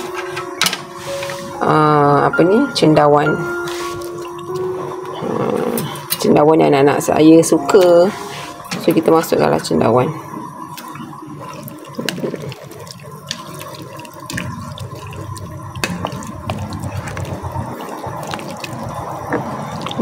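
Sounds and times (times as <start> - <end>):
broth sloshing and splashing: 10.2 - 20.0.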